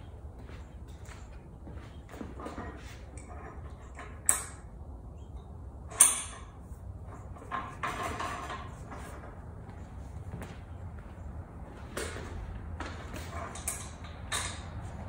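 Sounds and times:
metal sliding and rubbing: 2.1s - 4.7s, 5.9s - 9.5s, 13.0s - 15.0s.

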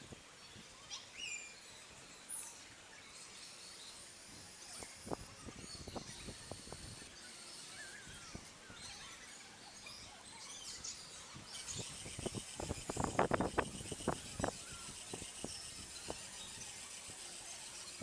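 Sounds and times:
small electric motors whining: 0.0s - 18.0s
birds chirping: 0.1s - 18.0s
plastic gears clicking: 4.2s - 8.5s, 11.5s - 18.0s.

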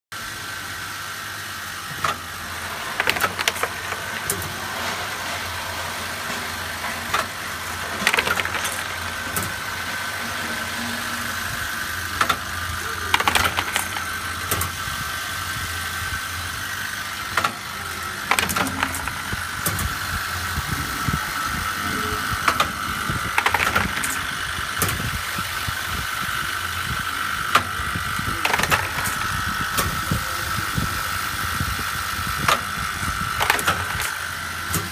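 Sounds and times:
machine high whine: 0.2s - 34.9s
machine low hum: 0.2s - 34.9s
mechanism clacking: 2.9s - 4.6s, 6.8s - 9.8s, 10.4s - 14.8s, 17.3s - 25.1s, 28.3s - 30.0s, 32.4s - 34.9s.

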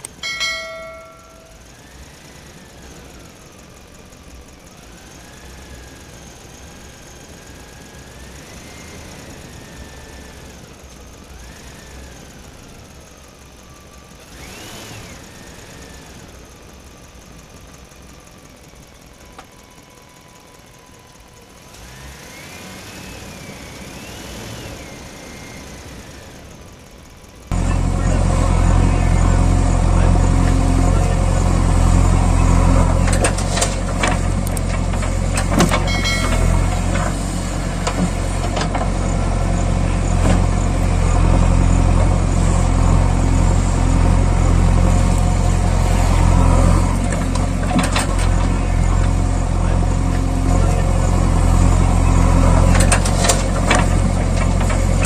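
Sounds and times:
faint engine sounds: 0.0s - 55.0s
loud low steady rumble: 26.5s - 55.0s.

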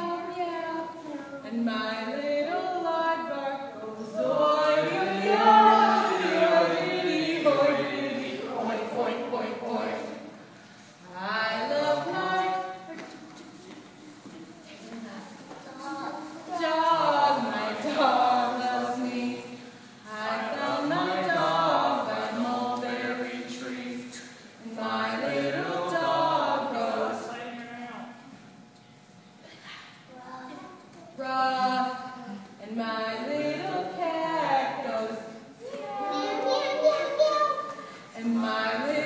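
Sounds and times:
voices singing held notes: 0.8s - 10.3s, 16.4s - 27.4s.

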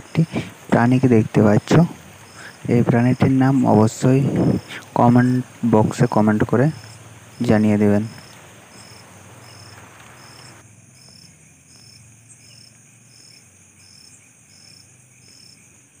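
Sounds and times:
cricket chirping: 0.0s - 16.0s
faint hiss: 0.0s - 16.0s.

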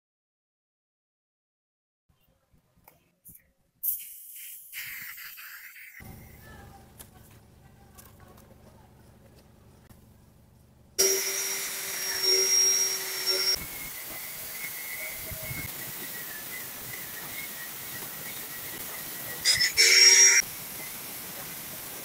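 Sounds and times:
angle grinder cutting steel: 11.0s - 17.5s, 18.6s - 20.4s.

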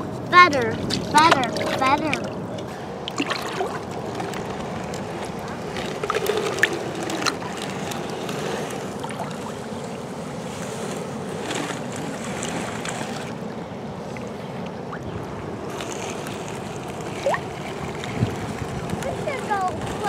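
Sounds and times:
knocks and splashes: 0.0s - 8.1s
water sloshing and lapping: 0.0s - 20.0s.

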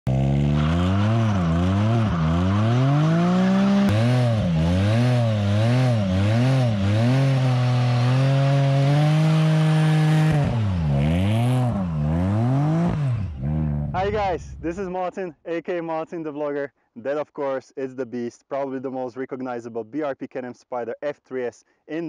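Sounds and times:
tire spinning on asphalt: 0.1s - 14.6s
motorcycle engine revving: 0.1s - 14.7s.

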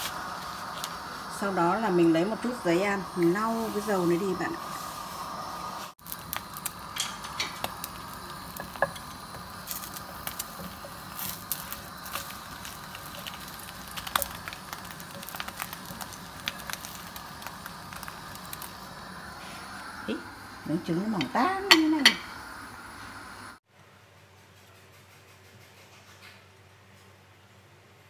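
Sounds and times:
egg sizzling in frying pan: 0.0s - 23.6s
crackles and pops: 6.0s - 19.2s.

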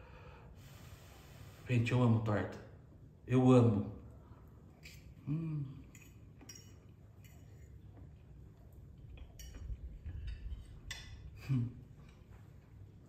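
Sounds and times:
person humming mm: 5.2s - 5.9s
fork clinking on ceramic plate: 5.9s - 7.8s, 9.2s - 11.4s.

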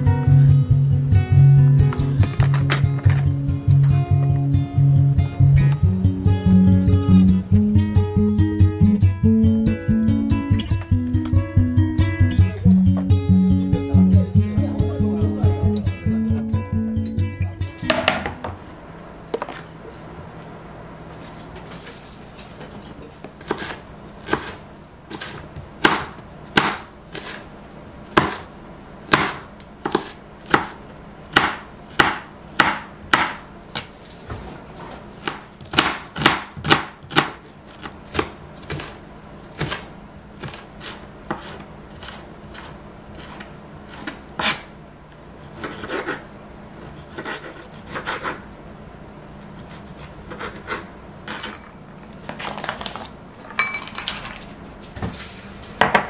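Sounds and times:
knife chopping on cutting board: 23.3s - 27.4s, 28.1s - 28.5s, 29.1s - 33.9s, 35.2s - 46.2s, 46.8s - 48.4s
knife slicing tomatoes: 23.3s - 27.5s, 29.1s - 33.9s, 34.9s - 48.5s, 49.5s - 51.6s.

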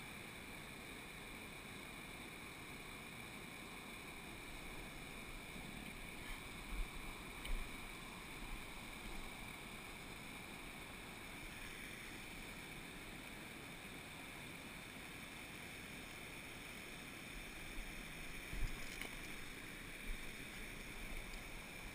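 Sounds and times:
water rushing over rocks: 0.1s - 21.9s.

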